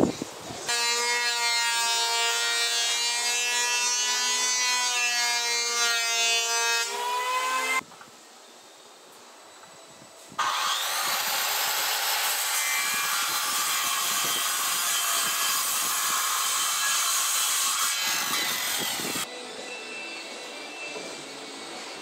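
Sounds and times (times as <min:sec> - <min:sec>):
circular saw cutting wood: 0:00.7 - 0:07.8, 0:10.4 - 0:19.3.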